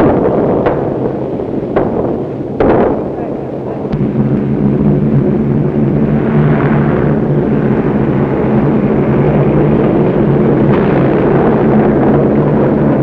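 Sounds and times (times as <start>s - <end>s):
loud droning noise: 0.0s - 13.0s
low hum: 0.0s - 13.0s.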